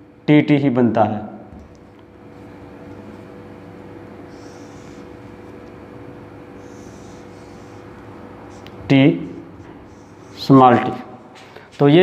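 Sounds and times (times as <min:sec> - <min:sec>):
electrical room hum: 0:00.0 - 0:12.0
marker hissing on whiteboard: 0:03.1 - 0:12.0.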